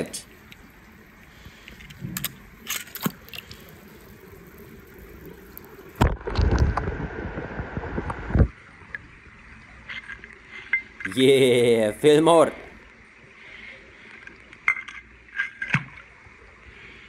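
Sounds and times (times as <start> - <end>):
churning gurgling water: 0.0 - 8.3
toy car splashing into water: 2.0 - 6.8.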